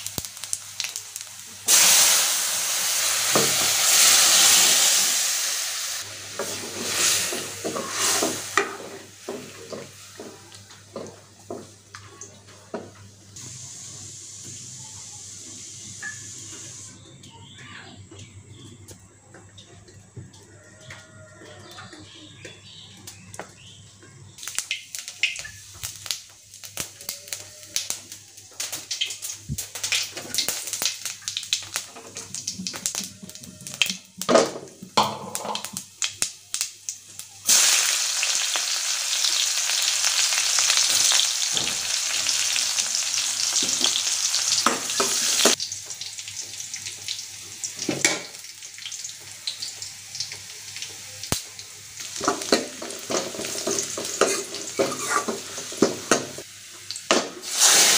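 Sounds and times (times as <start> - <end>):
hot oil crackling and popping: 0.0 - 14.6, 22.4 - 57.9
onions sizzling in oil: 0.0 - 17.6, 22.6 - 57.9
spatula stirring: 52.5 - 55.6.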